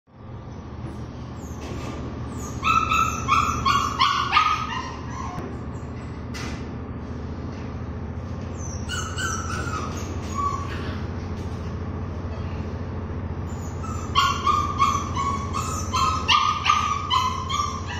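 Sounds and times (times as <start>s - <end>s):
steady low hum: 0.1s - 17.9s
small dog yipping: 2.3s - 5.9s, 8.5s - 11.0s, 13.5s - 17.9s.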